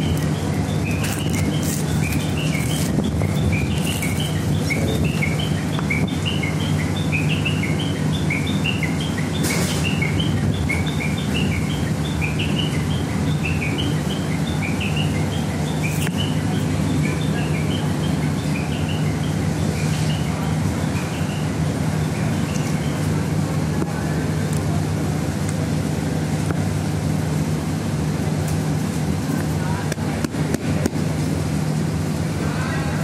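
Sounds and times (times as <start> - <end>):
birds chirping: 0.0 - 24.5
steady low hum: 0.0 - 33.0.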